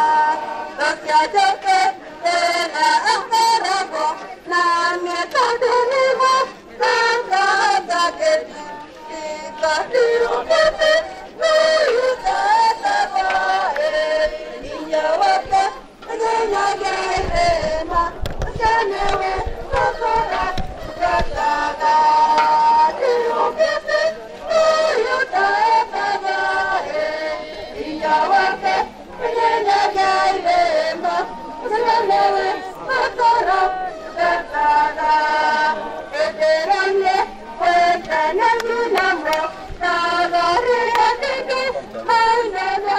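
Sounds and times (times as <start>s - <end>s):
group of voices singing: 0.0s - 42.9s.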